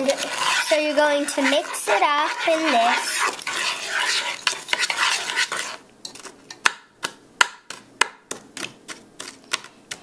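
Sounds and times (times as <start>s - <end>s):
spoon scraping crumbs in pan: 0.0s - 6.3s.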